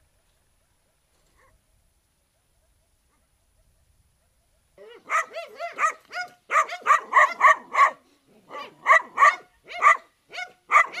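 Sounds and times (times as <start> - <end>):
dog barking: 1.3 - 1.6, 2.6 - 11.0.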